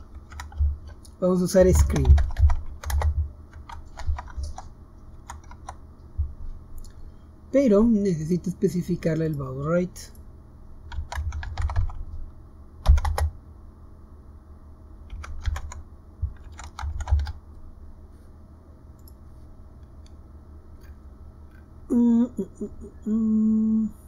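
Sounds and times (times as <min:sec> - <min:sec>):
typing on computer keyboard: 0:00.1 - 0:01.0, 0:01.6 - 0:05.8, 0:10.9 - 0:12.0, 0:12.8 - 0:13.3, 0:15.1 - 0:17.4.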